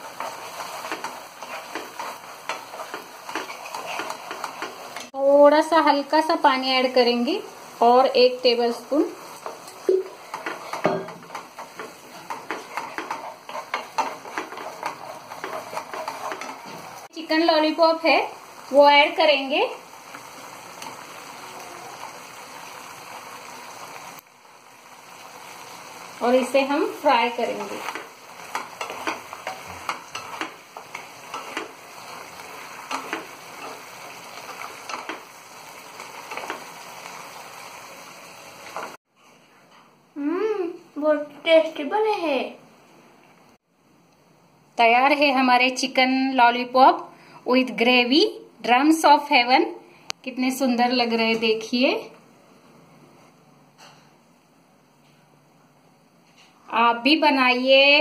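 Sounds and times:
wooden spatula scraping a frying pan: 0.0s - 5.2s, 8.7s - 17.1s, 26.3s - 37.9s.

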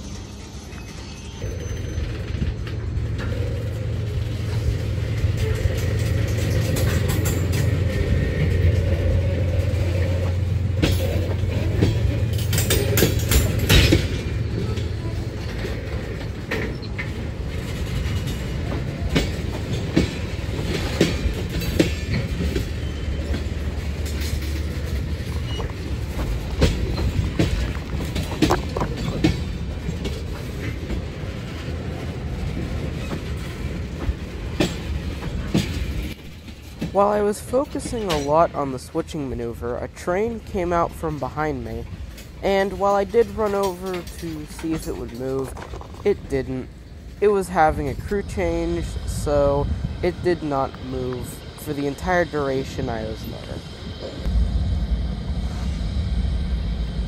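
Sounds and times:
wheels clicking over rail joints: 0.0s - 54.3s
diesel locomotive engine drone: 0.0s - 57.0s
sharp metallic clanks: 9.7s - 31.6s.

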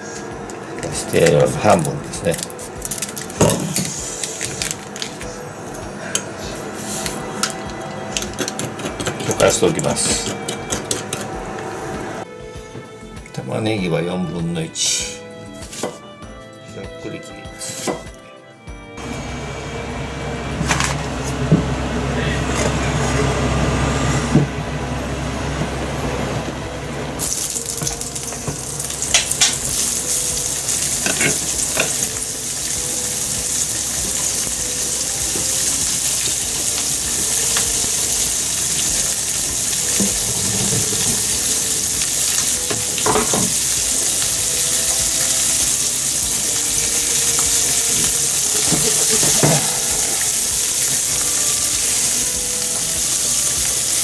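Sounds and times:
meat and onion sizzling in oil: 0.0s - 12.2s, 27.2s - 54.0s.

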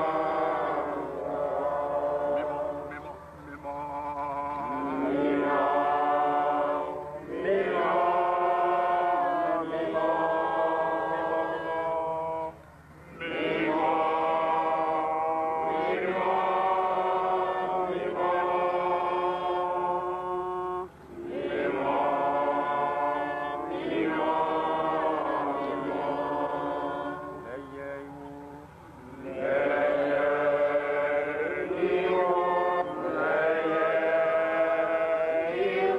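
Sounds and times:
voices chanting: 0.0s - 35.9s.

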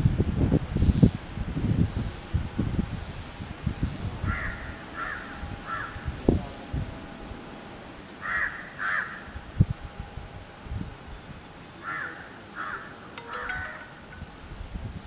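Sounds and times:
crow cawing: 4.3s - 6.0s, 8.2s - 9.3s, 11.8s - 13.6s.

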